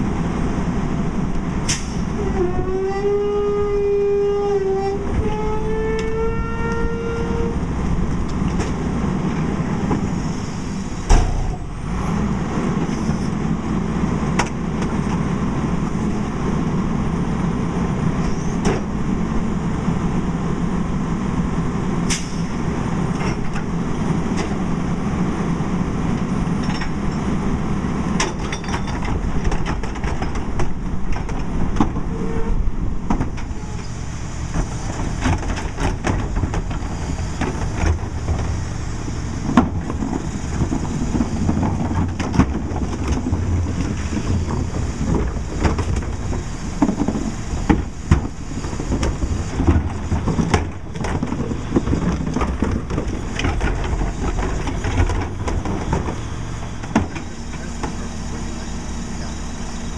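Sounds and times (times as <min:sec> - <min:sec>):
garbage truck diesel engine: 0:00.0 - 0:59.9
carts and trash clattering: 0:35.0 - 0:59.9
hydraulic whine: 0:53.9 - 0:59.9.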